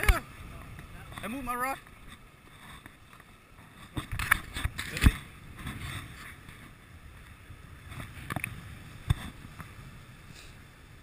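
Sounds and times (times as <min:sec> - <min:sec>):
rumble of wind and water: 0:00.0 - 0:11.0.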